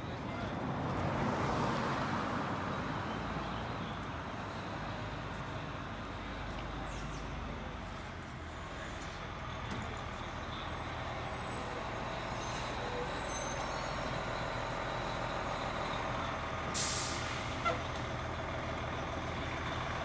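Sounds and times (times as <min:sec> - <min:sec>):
air brakes hissing: 0:11.5 - 0:14.3, 0:16.7 - 0:17.8
diesel engine idling: 0:14.2 - 0:20.0.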